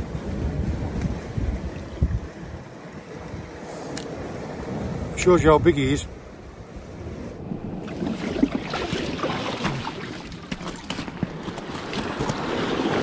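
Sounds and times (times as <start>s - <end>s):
water sloshing and splashing: 7.4s - 13.0s
small splashes and slaps: 8.1s - 13.0s.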